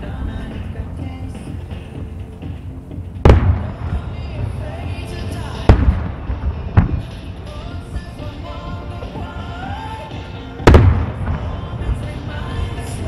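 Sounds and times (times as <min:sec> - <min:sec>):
music: 0:00.0 - 0:13.0
firework shells booming: 0:03.2 - 0:04.8, 0:05.6 - 0:07.2, 0:10.6 - 0:12.2.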